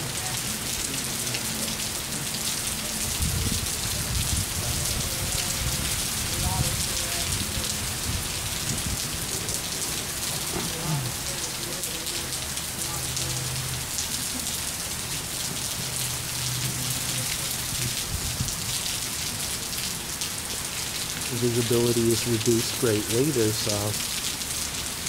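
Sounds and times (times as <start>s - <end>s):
heavy rain on pavement: 0.0s - 25.0s.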